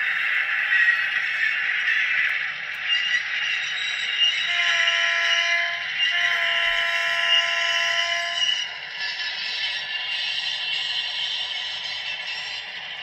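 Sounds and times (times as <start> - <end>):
model train diesel horn: 4.4 - 8.7.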